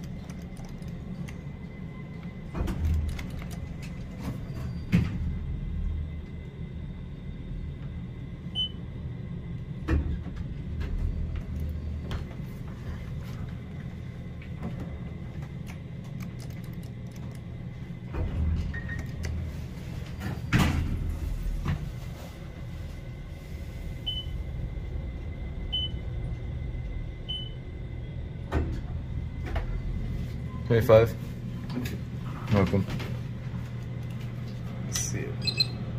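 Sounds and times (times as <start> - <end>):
elevator car hum: 0.0 - 35.9.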